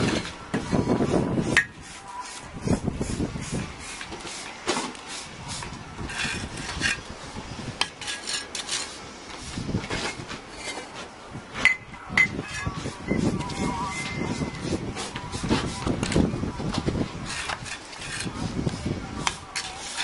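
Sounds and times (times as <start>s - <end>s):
trowel scraping and tapping: 7.8s - 9.0s, 17.2s - 20.0s.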